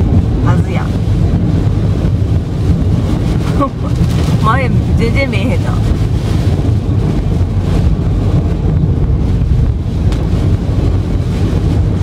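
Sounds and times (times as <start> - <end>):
rain hissing on car roof: 0.0 - 12.0
tyres rumbling on flooded road: 0.0 - 12.0.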